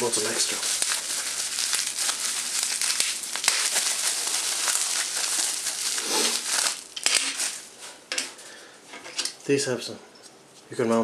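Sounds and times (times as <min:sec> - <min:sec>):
bubble wrap crinkling: 0:00.0 - 0:08.1.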